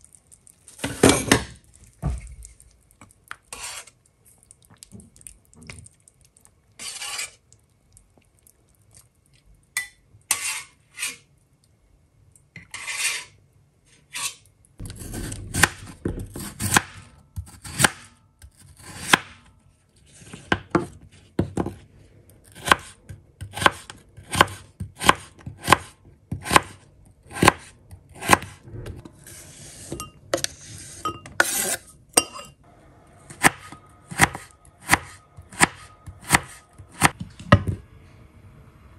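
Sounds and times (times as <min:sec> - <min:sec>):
knife chopping on wooden board: 0:14.8 - 0:18.1, 0:22.6 - 0:28.6, 0:33.3 - 0:37.6.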